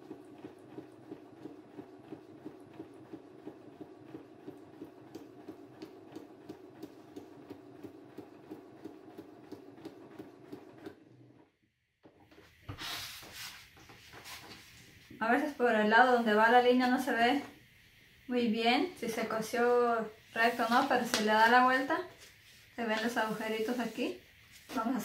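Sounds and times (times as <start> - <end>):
sewing machine motor hum: 0.0 - 12.2.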